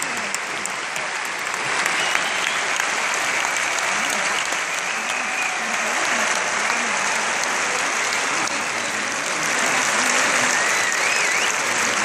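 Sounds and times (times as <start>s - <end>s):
audience applauding: 0.0s - 12.0s
wavering whistle from crowd: 1.8s - 2.7s, 10.5s - 11.7s.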